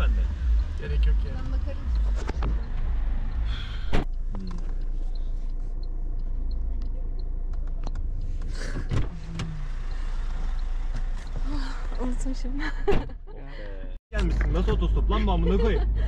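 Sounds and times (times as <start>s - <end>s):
steady low rumble: 0.0s - 16.0s
clunks and clicks in a car: 1.9s - 2.9s, 6.2s - 9.5s.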